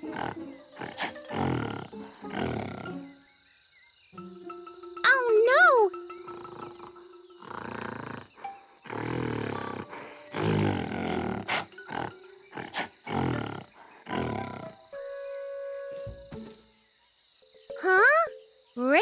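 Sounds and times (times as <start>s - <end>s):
gorilla roars and grunts: 0.0s - 3.1s, 6.4s - 14.8s.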